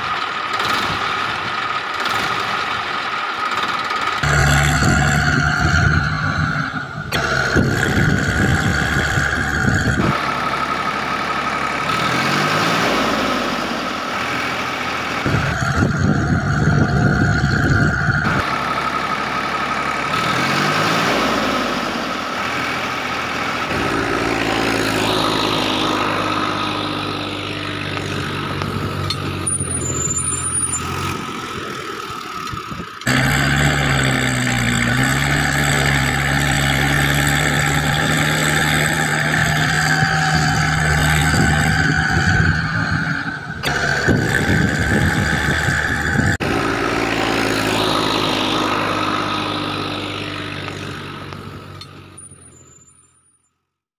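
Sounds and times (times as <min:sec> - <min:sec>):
heavy vehicle engines revving and idling: 0:00.0 - 0:53.4.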